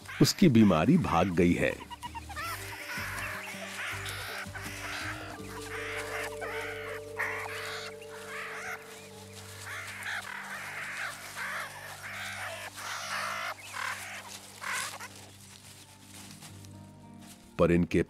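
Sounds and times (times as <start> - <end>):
meerkats calling: 0.0 - 16.4
low music drone: 1.6 - 17.5.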